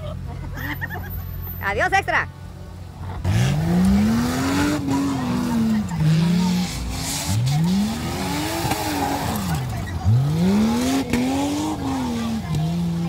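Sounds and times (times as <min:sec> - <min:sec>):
car engine revving: 0:03.0 - 0:13.0.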